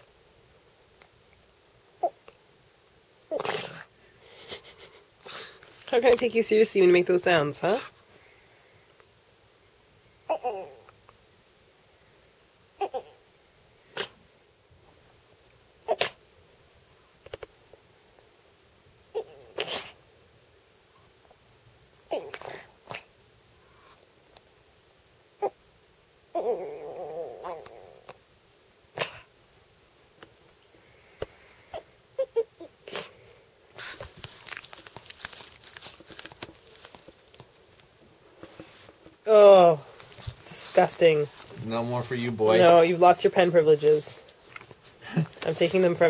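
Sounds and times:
crackling clicks and rustling: 5.6s - 6.4s, 33.8s - 39.2s, 44.1s - 46.0s.

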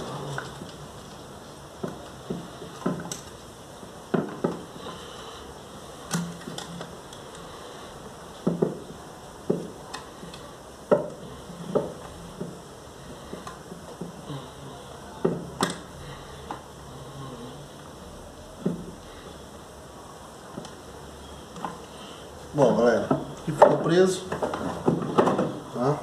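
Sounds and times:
tools and parts knocking: 8.4s - 8.9s, 10.9s - 12.6s, 23.1s - 25.6s.

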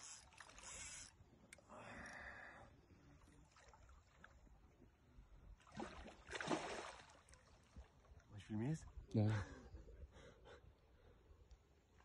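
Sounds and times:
water splashing: 5.6s - 7.8s.

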